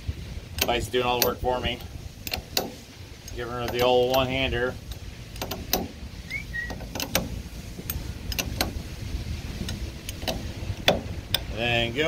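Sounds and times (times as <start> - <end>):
low steady rumble: 0.0 - 12.0
wrench clicking on metal nut: 0.5 - 6.0, 6.6 - 8.8, 9.6 - 11.5
brief high squeak: 6.3 - 6.8.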